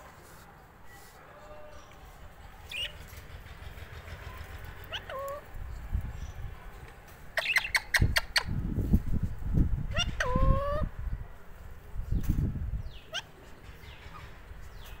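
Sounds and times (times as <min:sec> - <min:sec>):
parakeet calling: 0:07.4 - 0:08.5.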